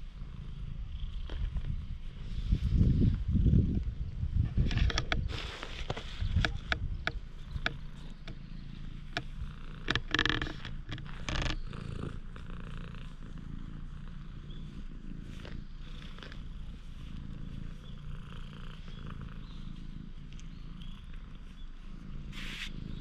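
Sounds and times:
cat purring: 0.0s - 23.0s
rubbing noises: 4.4s - 13.3s, 21.0s - 23.0s.

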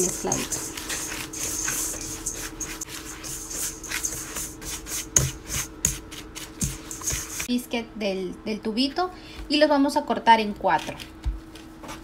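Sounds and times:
spatula scraping a metal bowl: 0.0s - 7.5s.

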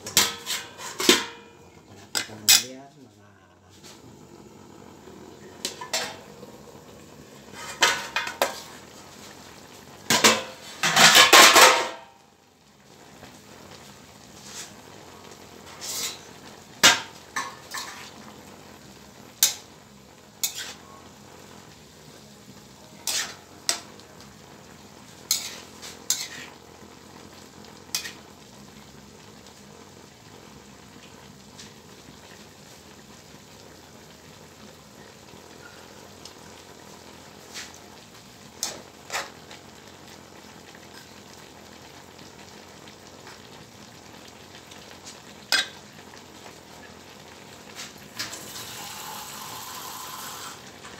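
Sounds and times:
metal spatula scraping wok: 0.0s - 2.6s, 5.6s - 6.3s, 7.4s - 8.9s, 15.6s - 18.2s, 20.4s - 21.0s, 23.0s - 24.0s, 25.2s - 26.6s, 27.9s - 28.3s, 38.6s - 39.4s
vegetables sizzling: 0.0s - 50.9s.

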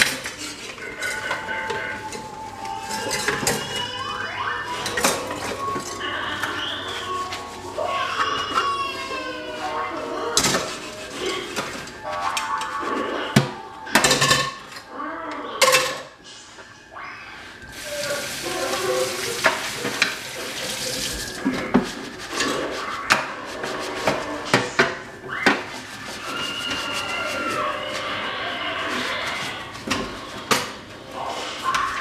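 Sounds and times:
dishes clanking in metal sink: 2.8s - 3.8s, 10.3s - 11.9s, 17.9s - 25.6s
faucet running: 17.7s - 21.5s.

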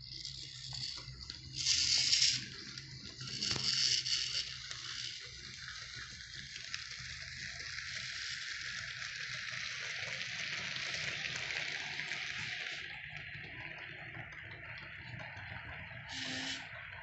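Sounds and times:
model train wheels rattling: 0.0s - 17.0s.

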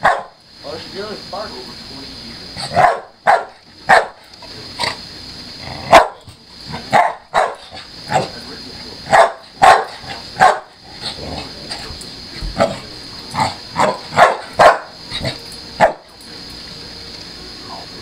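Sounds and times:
dog barking: 0.0s - 0.4s, 2.6s - 4.2s, 5.8s - 8.3s, 9.1s - 10.8s, 13.8s - 16.0s.

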